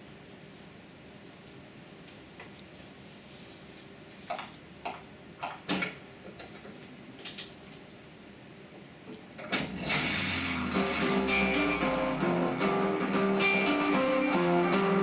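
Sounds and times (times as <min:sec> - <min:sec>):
video soundtrack from speakers: 0:09.9 - 0:15.0.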